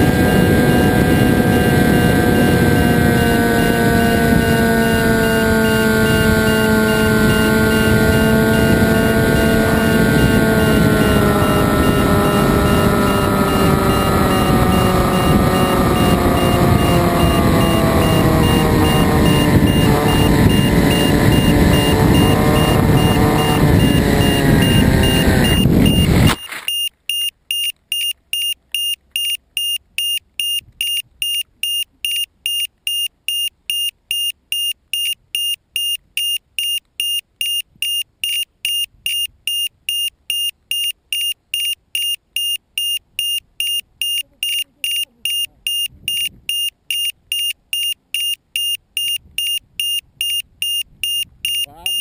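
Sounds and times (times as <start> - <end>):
wind rush: 0.0 - 26.4
model aircraft motor and propeller: 0.0 - 26.6, 51.4 - 52.0
high electronic beeps: 0.0 - 52.0.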